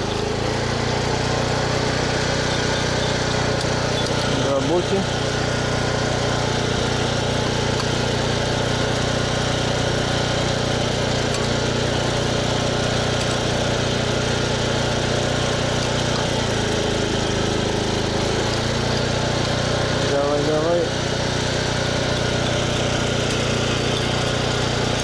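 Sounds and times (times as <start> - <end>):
portable generator engine humming: 0.0 - 25.0.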